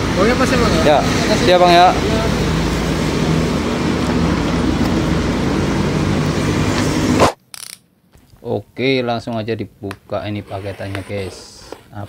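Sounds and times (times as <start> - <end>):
engine hum: 0.0 - 7.4.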